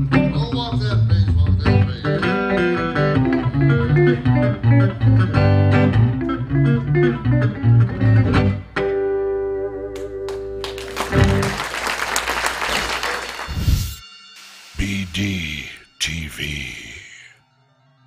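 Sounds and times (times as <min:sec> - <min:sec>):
fingerstyle electric guitar: 0:00.0 - 0:11.6.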